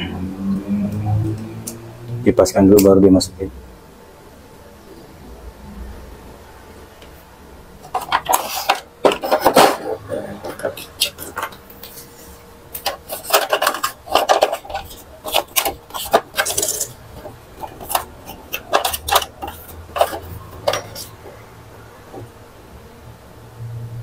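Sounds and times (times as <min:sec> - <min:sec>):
plastic printer parts clicking: 0:12.8 - 0:21.2.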